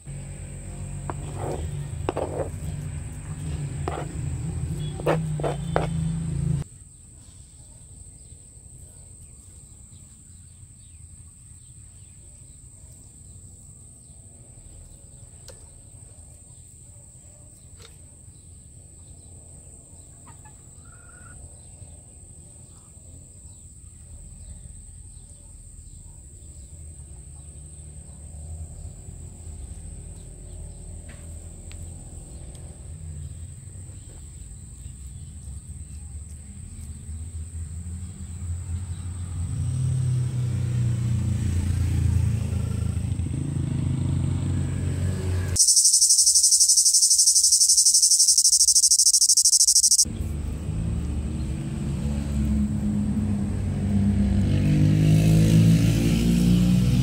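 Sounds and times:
high-pitched insect drone: 45.6s - 50.0s
faint bird chirp: 45.6s - 50.1s.

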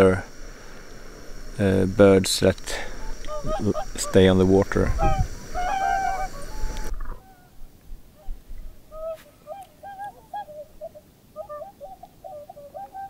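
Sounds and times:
swans trumpeting: 0.0s - 13.0s
faint click: 6.7s - 7.1s.

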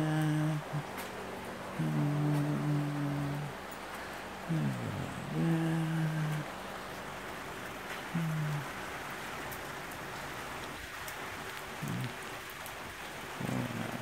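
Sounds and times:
person humming: 0.0s - 1.0s, 1.7s - 3.6s, 4.5s - 6.5s, 8.1s - 8.8s, 11.8s - 12.2s, 13.4s - 14.0s
rain pattering: 0.0s - 14.0s.

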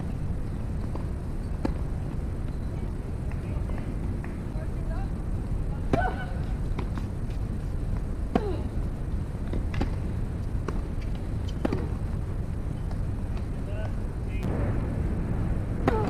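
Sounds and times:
low outdoor background noise: 0.0s - 16.0s
tennis ball bouncing: 0.8s - 1.8s, 6.7s - 7.4s, 9.4s - 10.0s, 10.6s - 12.0s
racket hitting tennis ball: 10.6s - 12.0s.

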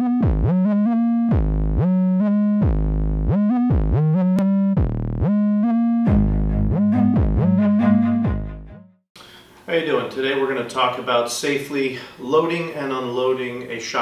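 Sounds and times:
electronic synthesizer music: 0.0s - 9.0s.

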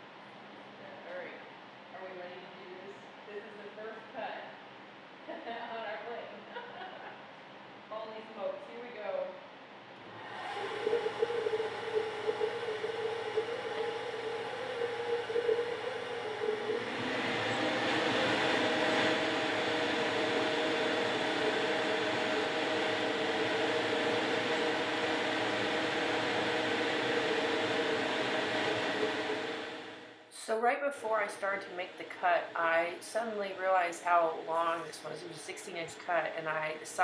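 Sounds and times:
bandsaw humming: 10.1s - 30.1s.

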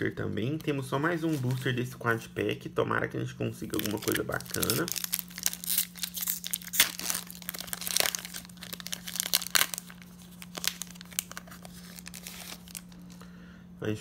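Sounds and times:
foil wrapper tearing and crinkling: 0.5s - 1.8s, 3.6s - 13.2s
cards sliding out of wrapper: 3.8s - 13.2s.

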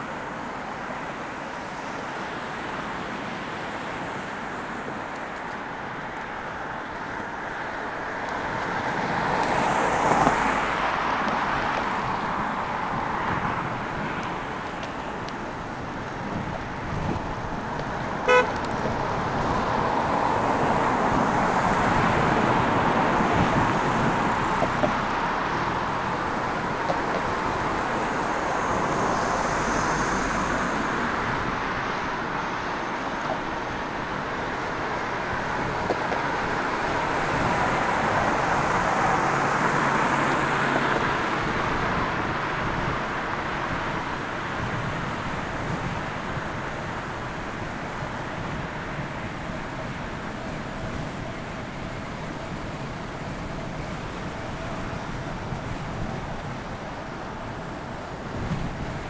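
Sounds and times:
road traffic passing: 0.0s - 59.0s
car horn beep: 18.2s - 18.6s.

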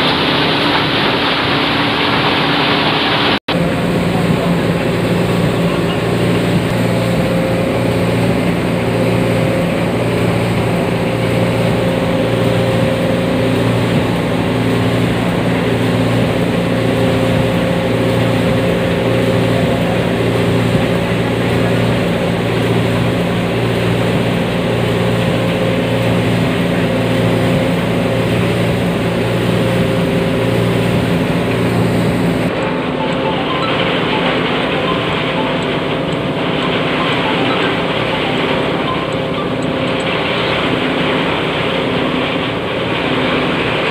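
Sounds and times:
drone of motors and pumps: 0.0s - 43.9s.

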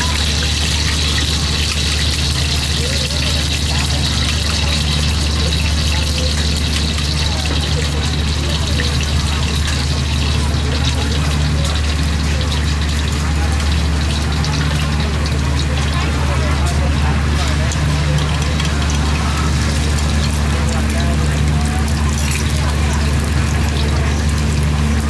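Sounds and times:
faint voices: 0.0s - 25.0s
low machinery hum: 0.0s - 25.0s.

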